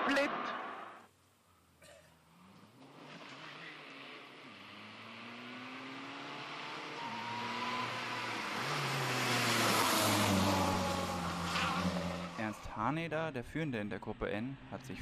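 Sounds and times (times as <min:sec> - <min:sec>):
rally car engine passing: 0:02.1 - 0:15.0
gear upshifts: 0:02.4 - 0:12.7.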